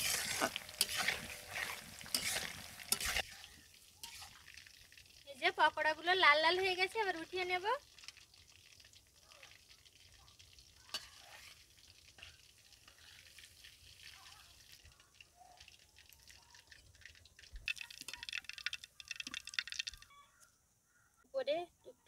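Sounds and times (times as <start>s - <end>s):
metal ladle clicks and scrapes: 0.0s - 4.6s, 10.9s - 13.2s
hot oil sizzling and crackling: 0.0s - 20.1s.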